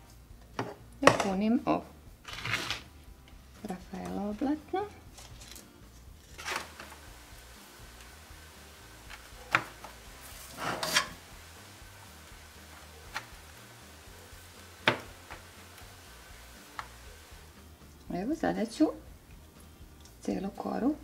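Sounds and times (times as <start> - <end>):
spoon scraping metal pot: 10.4 - 11.2.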